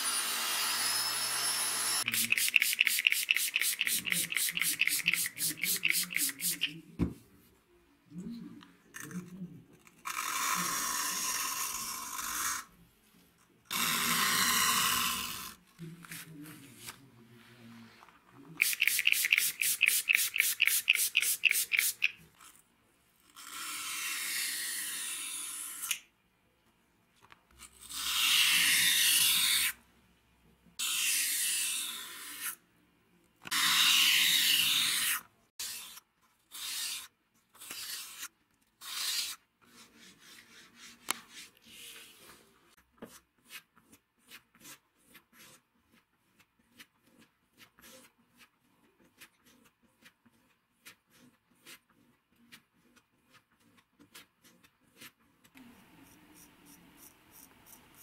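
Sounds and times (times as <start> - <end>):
blade scraping on sandpaper: 2.0 - 6.7, 18.6 - 22.1, 33.5 - 42.2.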